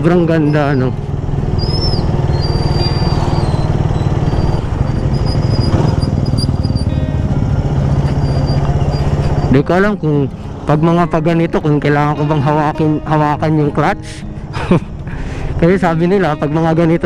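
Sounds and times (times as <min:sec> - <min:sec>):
motorcycle engine running: 0:00.0 - 0:17.0
road and wind noise: 0:00.0 - 0:17.0.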